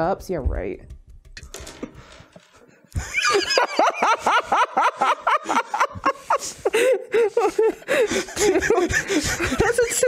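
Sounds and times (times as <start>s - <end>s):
people laughing loudly: 3.0s - 10.0s.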